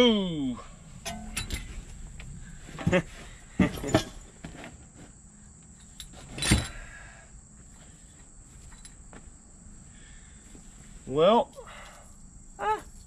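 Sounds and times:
insects chirping: 0.0 - 13.0
tool clanking on metal: 1.0 - 2.0, 3.6 - 4.7, 5.8 - 6.8.

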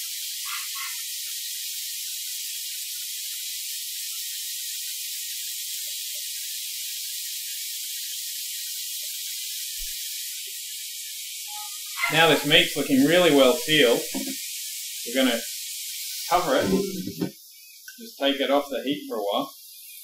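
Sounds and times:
meat sizzling in a pan: 0.0 - 20.0.

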